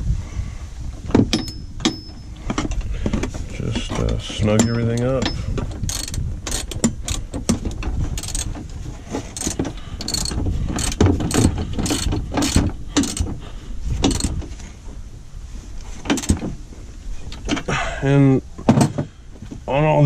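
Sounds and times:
hand ratchet clicking: 4.5 - 8.7, 9.3 - 13.3, 14.0 - 14.4.

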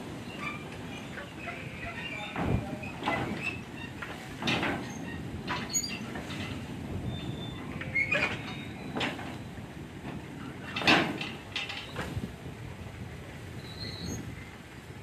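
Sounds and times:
railway wagons rumbling on rails: 0.0 - 15.0
metallic clanks: 2.1 - 6.7, 10.1 - 12.2.

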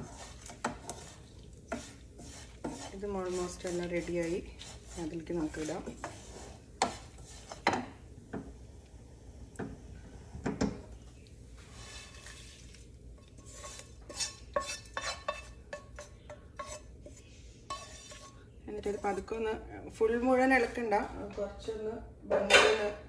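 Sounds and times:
spatula scraping frying pan: 0.0 - 8.7, 11.6 - 19.6.

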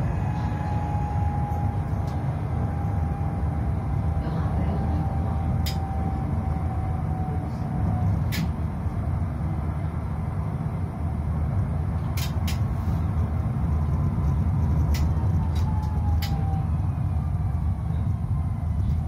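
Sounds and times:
tram wheels rumbling: 0.0 - 19.0
sharp clicks: 14.8 - 16.4.

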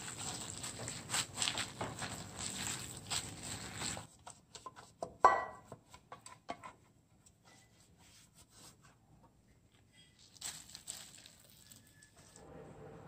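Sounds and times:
plastic glove rustling: 0.0 - 4.2, 10.2 - 12.4
wet squishing of batter mixing: 0.0 - 5.0, 10.1 - 12.5
kitchenware knock with ring: 5.2 - 5.7.

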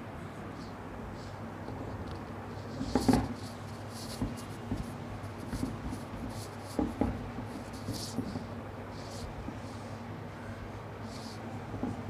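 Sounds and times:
cloth scrubbing whiteboard: 2.5 - 10.0, 11.0 - 12.0.

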